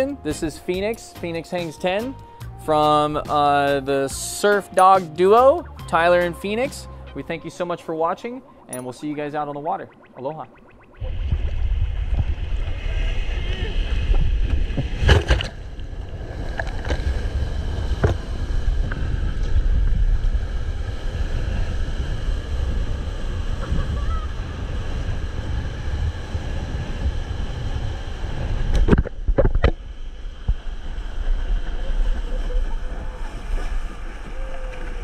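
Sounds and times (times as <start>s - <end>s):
wind buffeting microphone: 8.5s - 35.0s.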